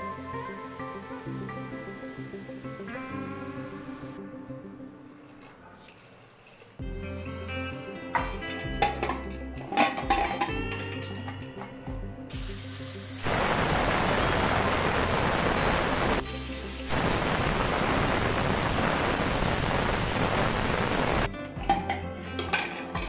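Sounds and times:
pressure cooker steam hissing: 12.3 - 21.3.

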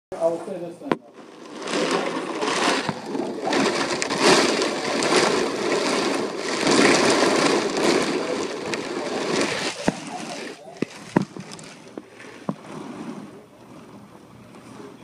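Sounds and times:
driving rain: 1.0 - 15.0
storm wind: 1.2 - 10.4.

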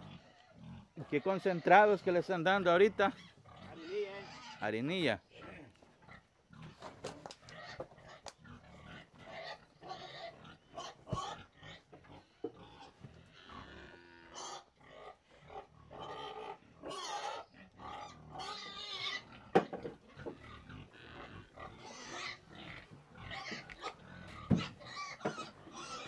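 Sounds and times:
cow chewing feed: 18.7 - 26.0.

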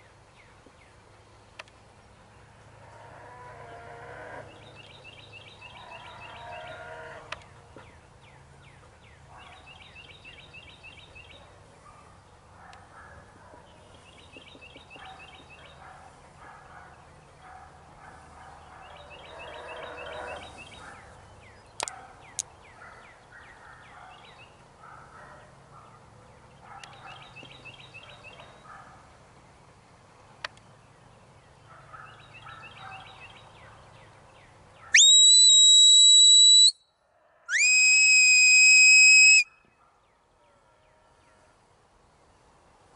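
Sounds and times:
faint field ambience: 0.0 - 42.9
rising whistle blasts: 35.0 - 36.8, 37.5 - 39.6.

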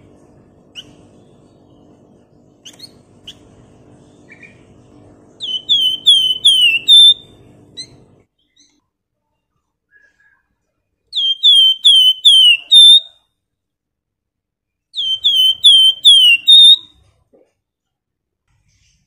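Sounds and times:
bird singing whistled phrases: 5.4 - 7.9, 11.1 - 13.2, 15.0 - 16.9.

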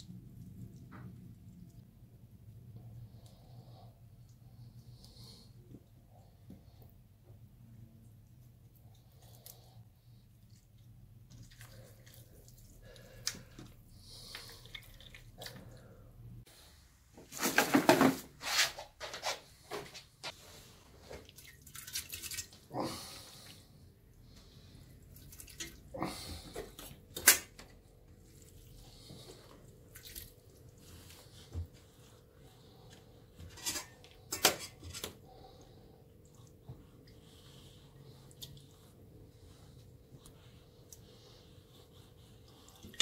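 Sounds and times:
wet squelches and splashes: 8.6 - 16.1, 20.9 - 27.3, 28.0 - 31.5.

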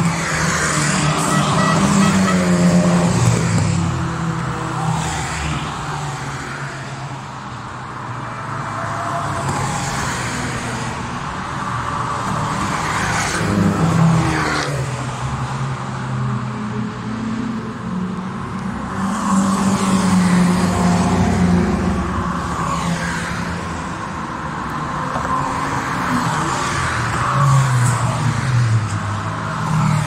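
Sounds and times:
cars driving past: 0.0 - 30.0.

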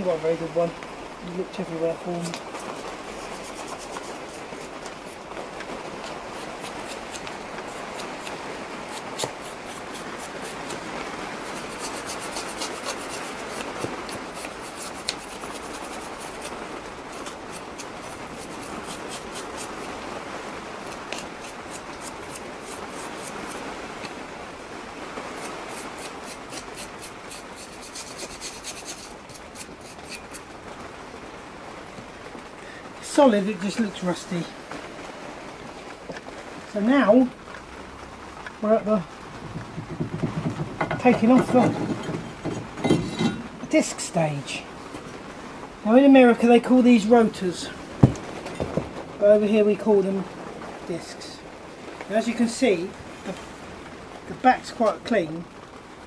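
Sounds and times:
wire brush scraping rust: 1.5 - 5.3, 6.0 - 19.9, 20.8 - 24.2, 25.4 - 30.5, 39.4 - 44.2.

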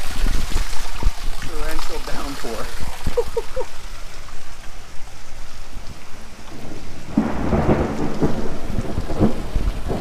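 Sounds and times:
torrential rain: 0.0 - 10.0
thunder rumbling: 6.5 - 10.0.

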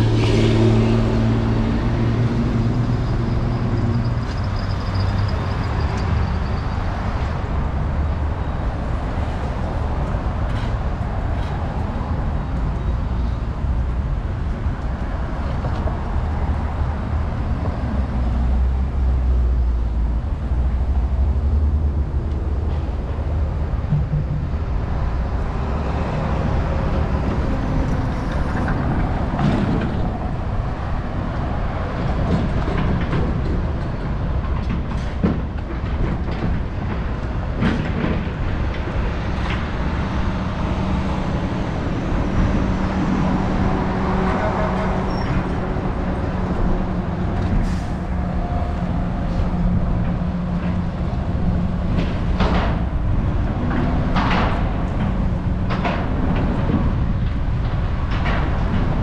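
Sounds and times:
low rumble of vehicle noise: 0.0 - 59.0
scattered clicks and knocks: 23.8 - 24.6, 32.1 - 40.0, 50.0 - 59.0.

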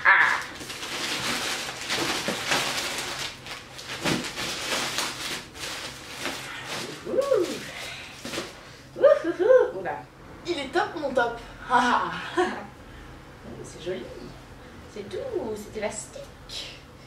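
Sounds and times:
plastic packaging crinkling: 0.2 - 8.6.

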